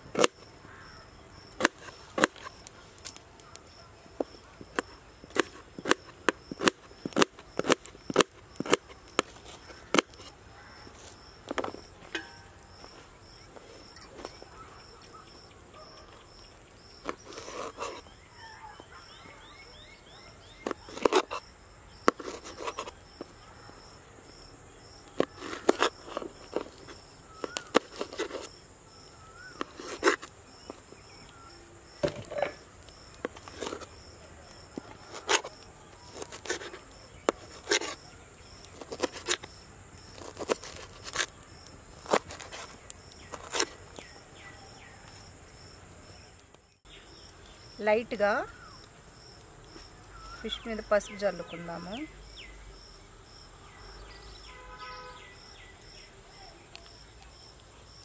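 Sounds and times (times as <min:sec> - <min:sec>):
insects chirping: 0:00.0 - 0:58.0.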